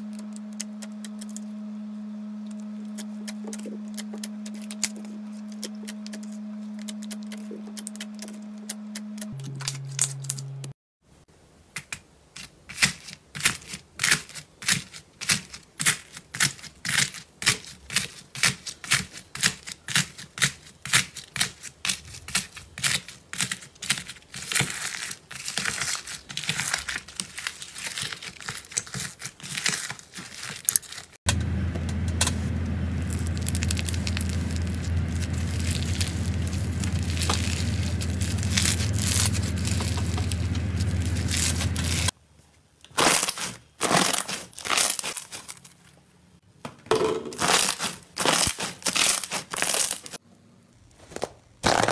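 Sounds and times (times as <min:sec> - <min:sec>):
low hum: 0:00.0 - 0:10.8, 0:31.3 - 0:42.1
slime beads crunching and crackling: 0:20.9 - 0:31.2, 0:32.2 - 0:42.1, 0:42.9 - 0:45.7, 0:47.4 - 0:50.2, 0:51.6 - 0:51.9.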